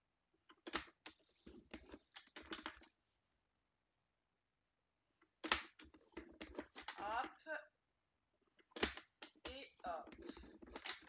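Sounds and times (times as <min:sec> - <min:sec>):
cardstock rustling: 0:05.4 - 0:07.4, 0:08.7 - 0:11.0.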